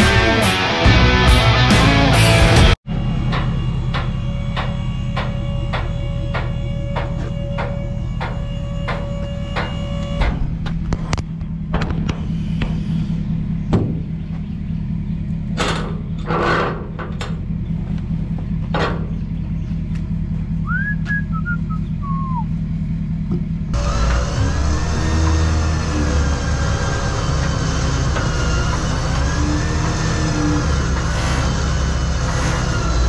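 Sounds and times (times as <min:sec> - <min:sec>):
truck engine idling: 0:00.0 - 0:33.0
metal scrape: 0:04.0 - 0:14.2, 0:15.6 - 0:17.0, 0:23.8 - 0:33.0
whistled chirps: 0:20.6 - 0:22.5.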